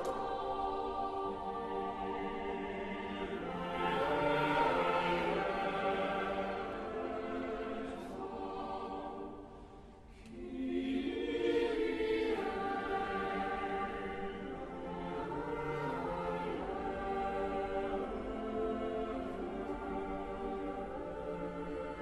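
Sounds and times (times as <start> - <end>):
choir singing: 0.0 - 22.0.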